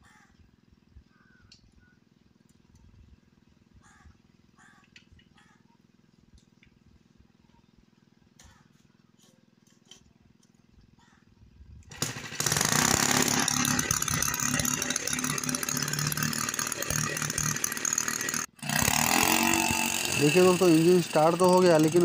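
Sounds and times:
small petrol engine racing: 0:11.9 - 0:22.0.

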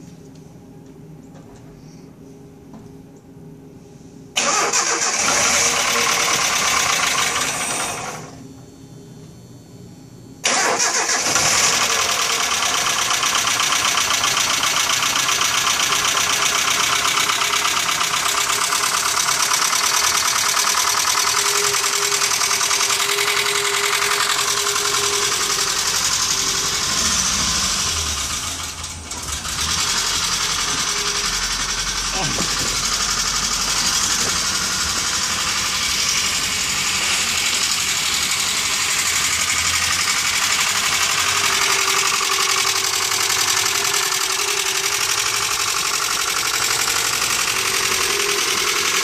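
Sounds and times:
truck engine rattling: 0:13.4 - 0:49.0.

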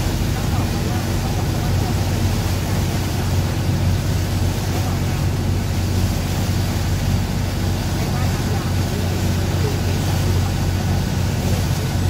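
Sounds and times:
boat engine droning: 0:00.0 - 0:12.0
rushing water: 0:00.0 - 0:12.0
wind: 0:00.0 - 0:12.0.

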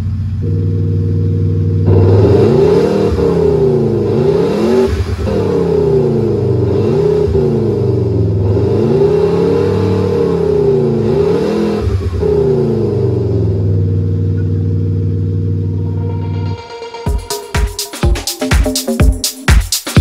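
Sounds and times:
simulated car exhaust revving: 0:00.0 - 0:17.0.

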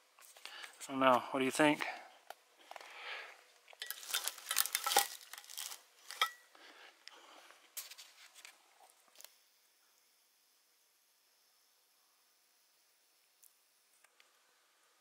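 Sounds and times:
metal clinking and scraping on rocks: 0:03.7 - 0:06.5.

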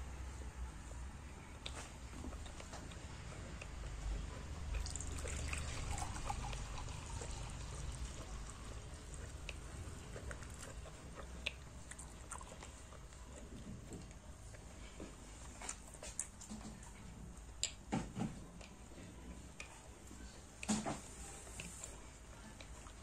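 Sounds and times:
tea pouring into glass cup: 0:04.8 - 0:08.7.

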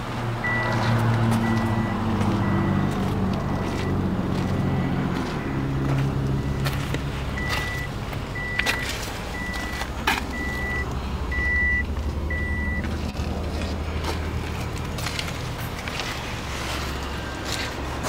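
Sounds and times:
electronic warning beeps: 0:00.4 - 0:00.8, 0:01.4 - 0:12.9.

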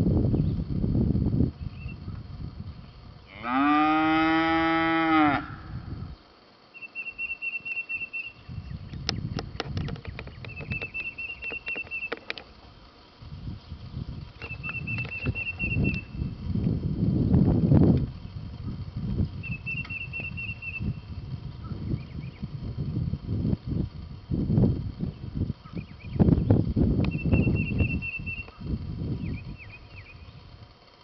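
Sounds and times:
cow mooing: 0:03.3 - 0:05.7.

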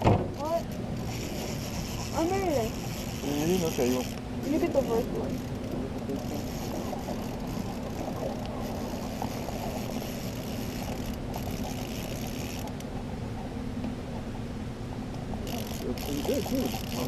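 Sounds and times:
outboard motor running: 0:00.0 - 0:17.0.

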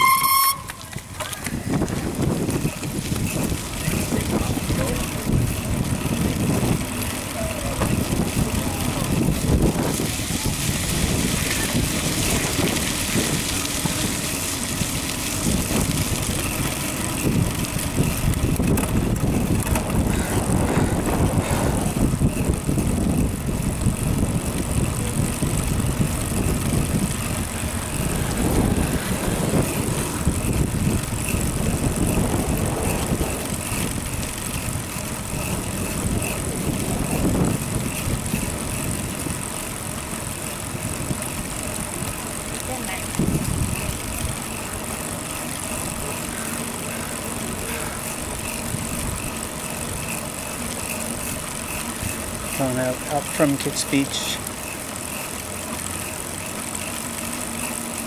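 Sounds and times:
wind on microphone: 0:00.0 - 0:39.5, 0:43.1 - 0:44.5
bicycle ride noise: 0:00.0 - 0:58.0.

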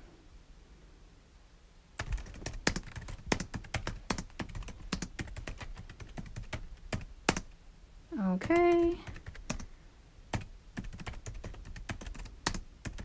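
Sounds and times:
computer keyboard typing: 0:02.0 - 0:07.5, 0:08.4 - 0:09.7, 0:10.3 - 0:13.0.

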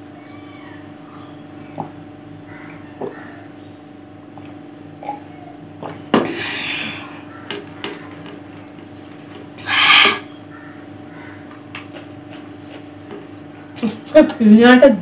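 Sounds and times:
steady hum: 0:00.0 - 0:15.0
breathy hiss: 0:09.6 - 0:10.3.

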